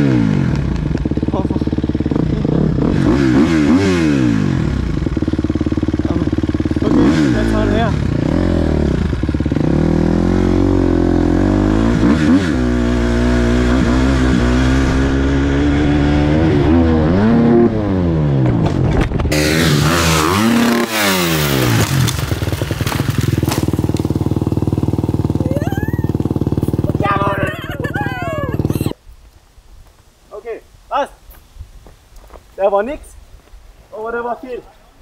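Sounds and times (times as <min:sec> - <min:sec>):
motocross engine revving: 0:00.0 - 0:29.0
crash clatter and scraping: 0:21.6 - 0:24.2.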